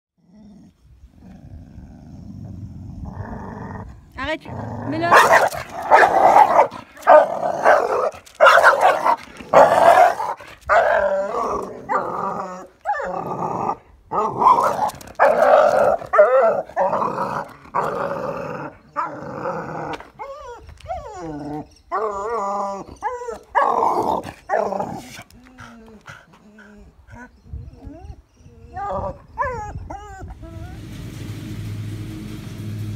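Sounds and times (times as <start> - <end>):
dog barking and growling: 2.9 - 20.5, 21.3 - 27.4.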